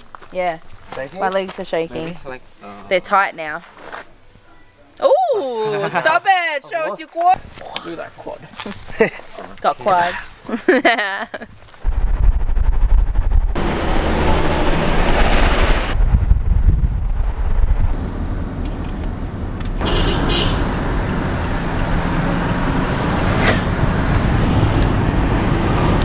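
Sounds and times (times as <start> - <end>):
car road and engine noise: 0.0 - 4.9, 5.9 - 26.0.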